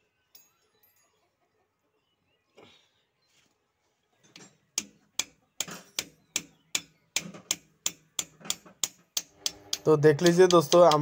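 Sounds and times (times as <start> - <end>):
sharp metal clicks: 4.3 - 11.0.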